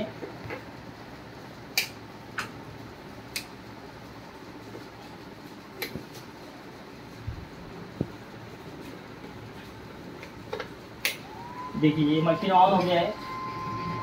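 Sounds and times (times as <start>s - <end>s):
sharp plastic clicks: 1.7s - 2.5s.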